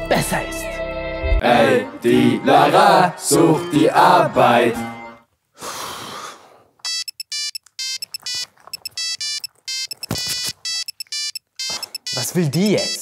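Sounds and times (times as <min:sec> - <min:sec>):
phone ringtone melody: 0:06.9 - 0:13.0.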